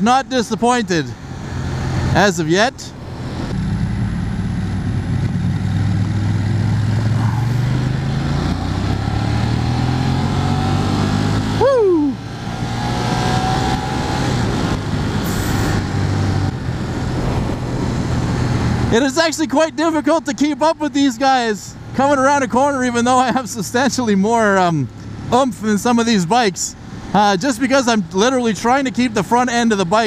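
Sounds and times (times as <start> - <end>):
motorcycle engine accelerating: 1.2 - 19.1
wind rush: 2.8 - 8.0, 11.4 - 19.0.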